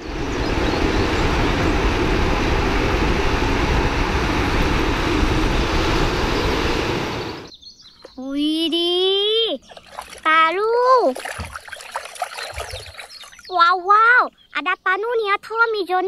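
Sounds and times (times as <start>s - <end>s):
wheels rushing on asphalt: 0.0s - 7.5s
wind on microphone: 0.0s - 7.5s.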